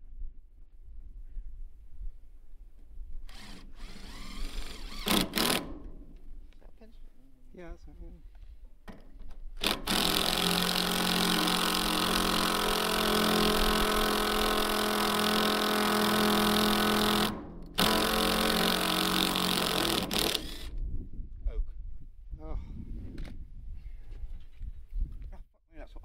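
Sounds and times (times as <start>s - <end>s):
impact driver running hard: 9.6s - 20.7s.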